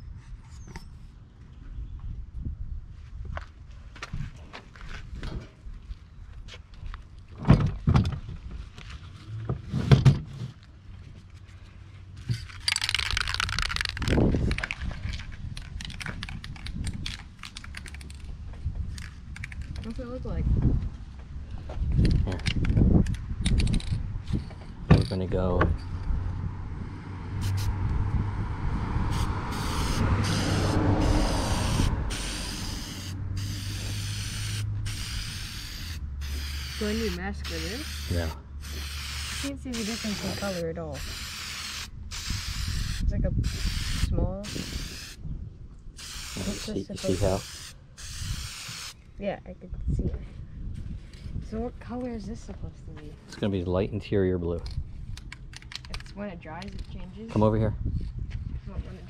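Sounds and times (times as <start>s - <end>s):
spray paint can rattling: 12.5s - 18.2s, 31.6s - 40.4s, 41.0s - 45.2s, 46.0s - 46.7s, 47.4s - 49.0s.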